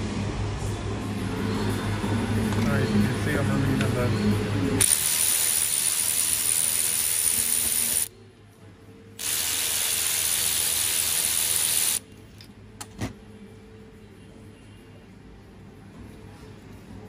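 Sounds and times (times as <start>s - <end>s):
ratchet spinning: 4.8s - 8.1s, 9.2s - 12.0s.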